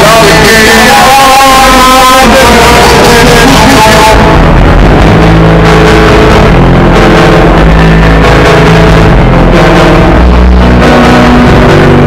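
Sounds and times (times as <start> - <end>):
loud distorted alarm music: 0.0 - 12.0.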